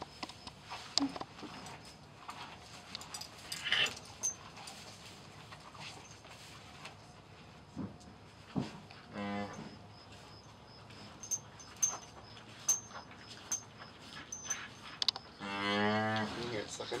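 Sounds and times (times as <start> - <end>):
cattle mooing: 9.1 - 9.6, 15.4 - 16.4.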